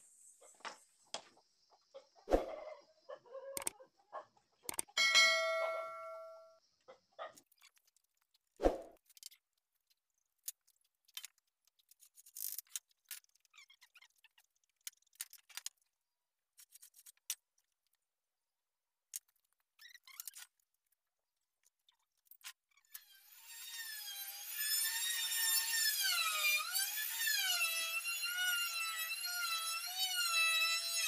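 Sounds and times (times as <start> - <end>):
power tool whine: 23.0 - 31.0.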